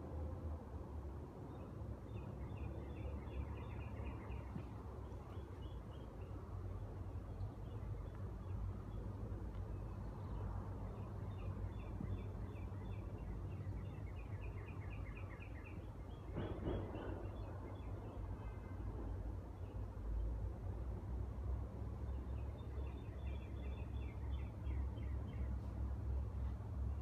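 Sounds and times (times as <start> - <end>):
songbird chirping: 1.4 - 20.2.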